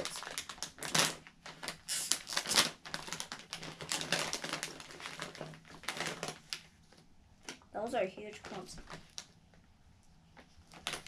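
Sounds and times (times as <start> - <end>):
plastic snack bag crinkling: 0.0 - 7.7, 8.3 - 9.4, 10.6 - 11.0.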